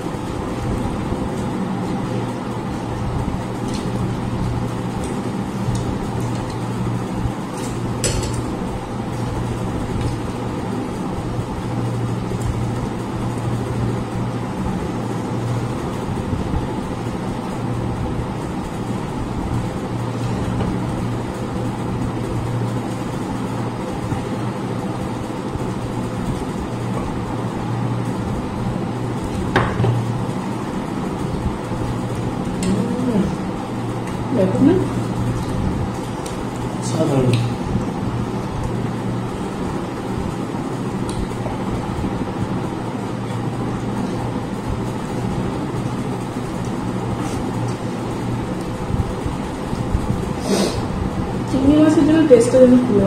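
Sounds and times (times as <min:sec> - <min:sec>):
low machine hum: 0:00.0 - 0:53.0.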